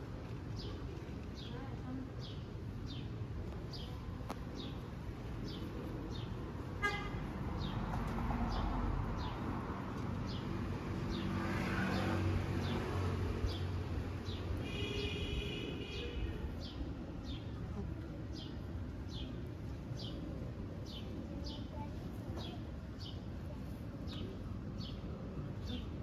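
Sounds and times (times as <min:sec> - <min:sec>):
low traffic rumble: 0:00.0 - 0:26.0
car horn toot: 0:06.8 - 0:07.2.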